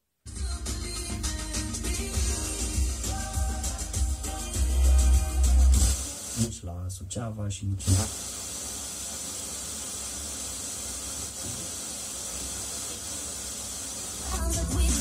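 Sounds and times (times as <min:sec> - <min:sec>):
radio static hiss: 0:05.6 - 0:06.7, 0:07.7 - 0:15.0.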